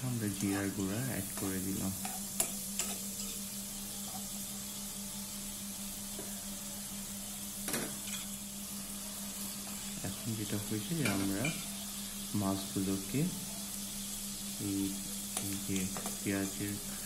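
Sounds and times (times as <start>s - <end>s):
spatula stirring and scraping: 0.0s - 4.6s
fish sizzling in a pan: 0.0s - 17.0s.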